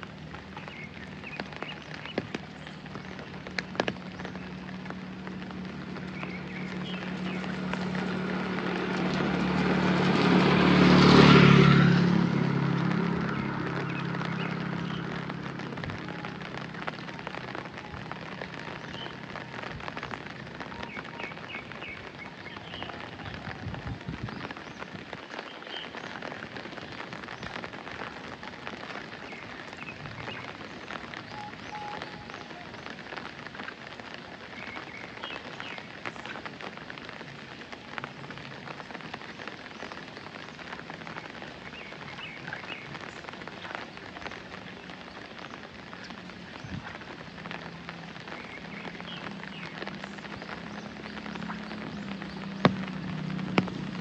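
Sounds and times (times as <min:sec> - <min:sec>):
steady rain falling: 0:00.0 - 0:54.0
vehicle passing by: 0:04.5 - 0:17.6, 0:47.1 - 0:54.0.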